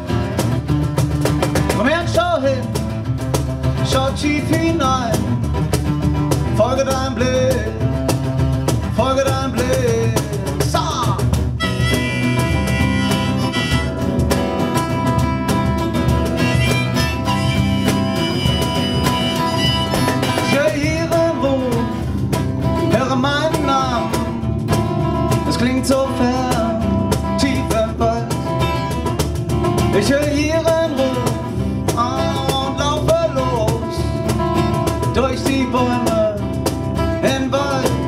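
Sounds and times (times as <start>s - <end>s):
drums and hand percussion: 0.0s - 38.0s
strummed acoustic guitar: 0.0s - 38.0s
bending melody line: 11.5s - 22.0s.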